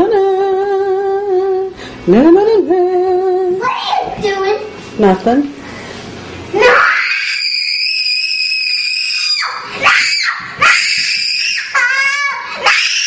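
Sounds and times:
girl screaming: 6.6s - 13.0s.

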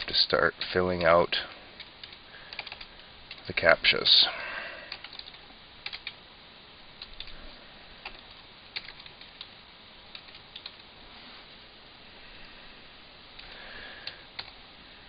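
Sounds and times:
keyboard keystrokes: 2.0s - 3.5s.

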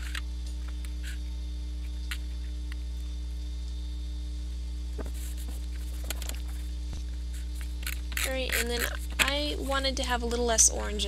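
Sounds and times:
electrical mains hum: 0.0s - 11.0s
paper sheet taps and rustles: 5.0s - 6.5s.

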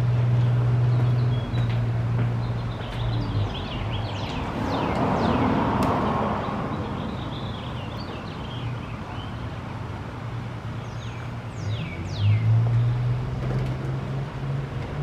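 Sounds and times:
vehicle passing: 0.0s - 8.6s
birds chirping: 0.1s - 5.6s, 6.2s - 9.9s, 10.8s - 13.1s.

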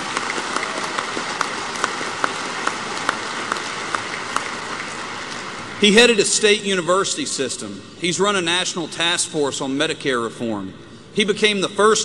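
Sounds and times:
large audience applauding: 0.0s - 5.9s.

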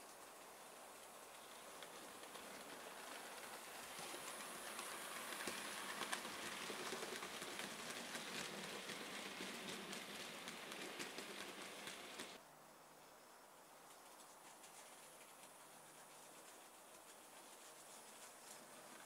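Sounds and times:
model train wheels rattling: 0.0s - 12.4s
wheels clicking over rail joints: 0.1s - 12.4s.

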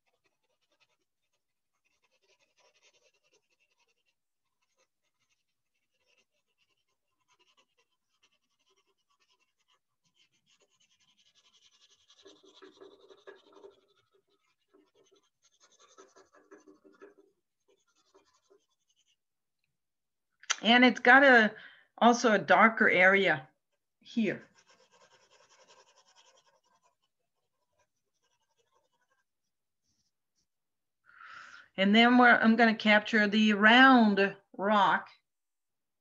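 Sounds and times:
pencil scratching on paper: 0.0s - 19.4s, 22.9s - 30.6s.

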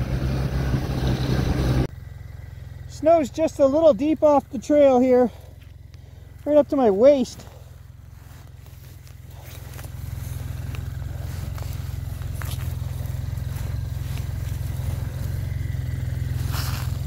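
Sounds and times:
engine droning: 0.0s - 17.0s
footsteps in deep snow: 5.2s - 17.0s.

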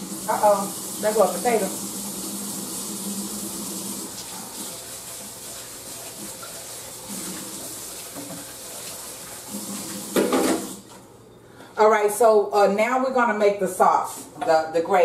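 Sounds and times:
faucet running into a sink: 0.0s - 10.8s.

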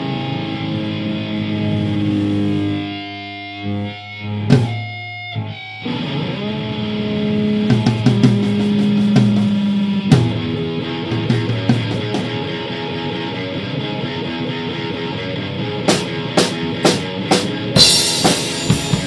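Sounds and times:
distorted electric guitar chords: 0.0s - 19.0s
drum hits: 15.9s - 19.0s
sharp hit: 17.8s - 19.0s.

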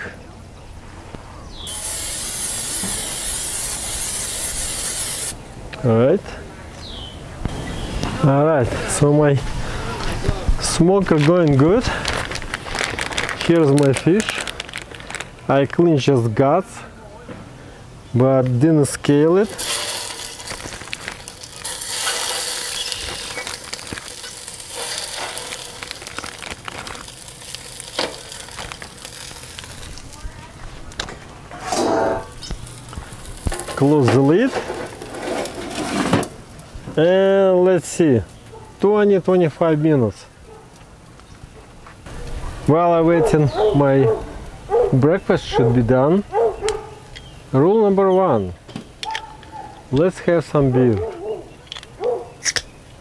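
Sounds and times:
fish sizzling in a hot pan: 1.6s - 5.4s, 19.5s - 30.2s, 32.2s - 35.6s
aerosol spray hissing: 1.7s - 5.4s.

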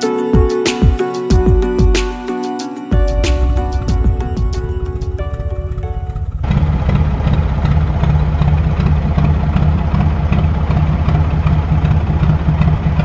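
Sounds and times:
diesel boat engine idling: 3.0s - 13.0s.

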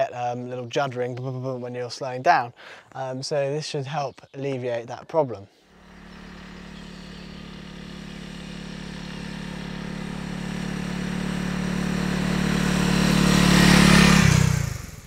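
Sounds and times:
motorcycle engine approaching: 5.7s - 15.0s.

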